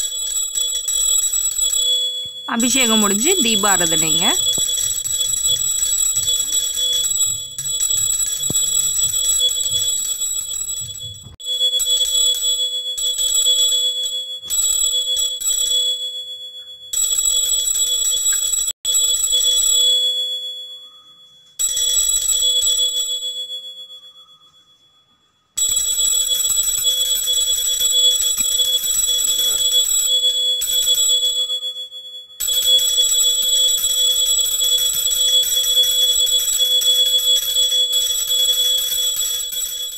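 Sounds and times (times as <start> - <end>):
hand bell ringing rapidly: 2.5 - 11.4.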